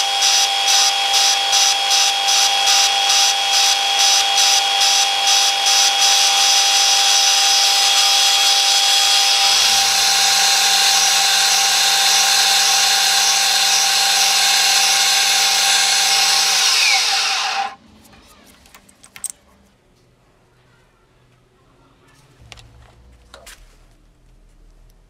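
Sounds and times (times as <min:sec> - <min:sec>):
drilling machine boring wood: 0:00.0 - 0:17.8.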